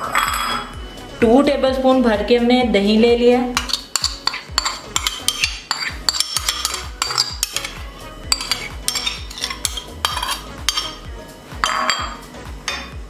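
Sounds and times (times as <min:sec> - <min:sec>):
metal spoon scraping and tapping: 0:00.0 - 0:00.8, 0:03.5 - 0:13.0.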